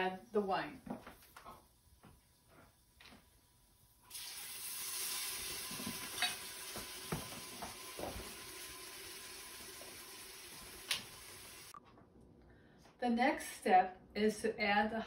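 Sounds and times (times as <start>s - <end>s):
wine sizzling in a hot pan: 3.7s - 11.8s
spoon knocking and scraping pot: 5.7s - 7.3s.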